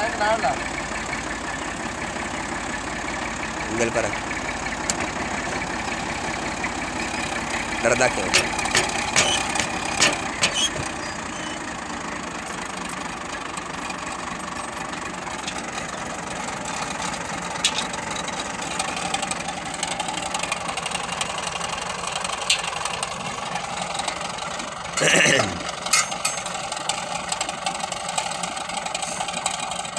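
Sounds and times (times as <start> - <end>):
tractor engine idling: 0.0 - 29.9
metallic clicks and clinks: 25.9 - 26.7.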